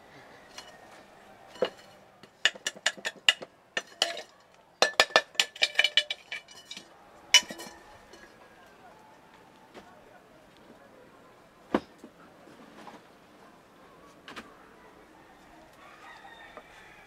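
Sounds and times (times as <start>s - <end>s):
metal tool scraping: 1.5s - 8.3s
metal tool tapping on mold: 1.6s - 6.2s.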